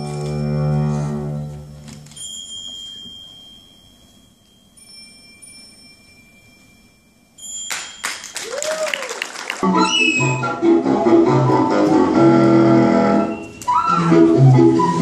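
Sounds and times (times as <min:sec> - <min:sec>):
bell-like chime notes: 0:02.1 - 0:08.4.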